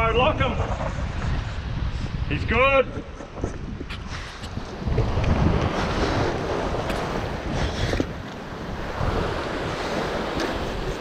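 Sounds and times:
wind buffeting microphone: 0.0s - 11.0s
ocean swell breaking over rocks: 4.3s - 11.0s.

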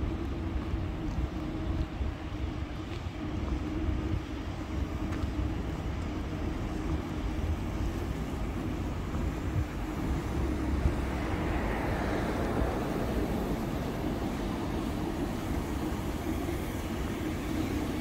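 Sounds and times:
city traffic rumble: 0.0s - 18.0s
vehicle passing: 10.2s - 15.0s.

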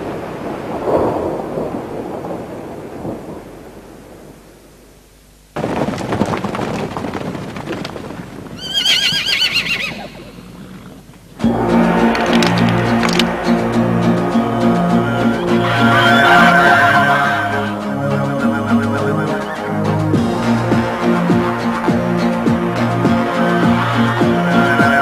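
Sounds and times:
rumbling noise with clatter: 5.6s - 8.8s
horse neighing: 8.6s - 11.2s, 15.4s - 20.1s
wind-like rushing noise: 11.4s - 23.3s
music: 11.4s - 25.0s.

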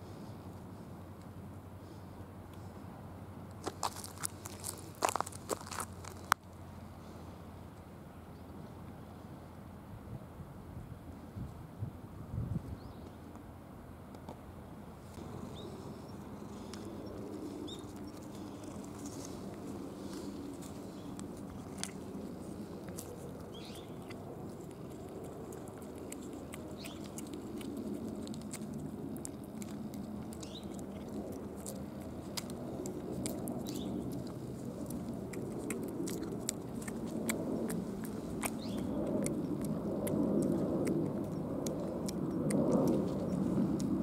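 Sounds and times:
low rushing background noise: 12.9s - 44.0s
cat licking with wet tongue clicks: 24.1s - 44.0s.

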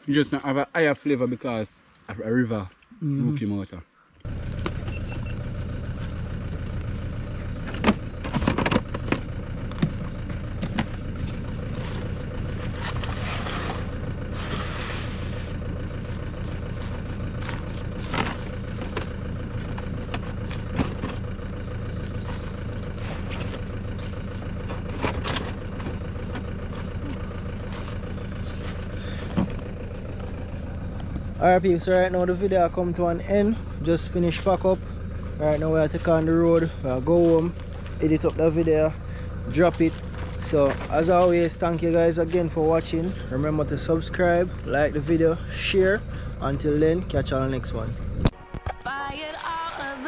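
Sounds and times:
vehicle engine idling: 4.0s - 48.6s
gear knocking and rustling: 4.3s - 14.3s, 15.3s - 33.1s, 34.2s - 45.1s.

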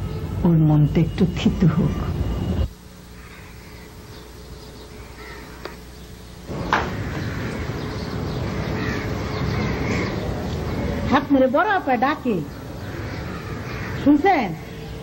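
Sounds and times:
outdoor ambience: 0.0s - 15.0s
crows cawing: 3.1s - 5.9s, 6.5s - 11.2s, 12.4s - 14.8s.

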